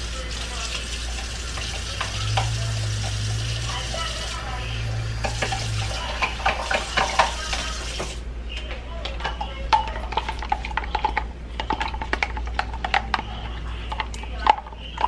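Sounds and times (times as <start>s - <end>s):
dishes and utensils clinking: 0.2s - 8.2s, 9.0s - 15.0s.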